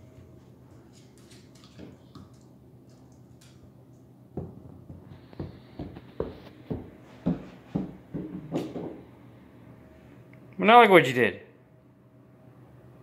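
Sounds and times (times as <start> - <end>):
dog claws clicking on hardwood floor: 1.0 - 3.6
footsteps on carpeted stairs: 4.4 - 9.2.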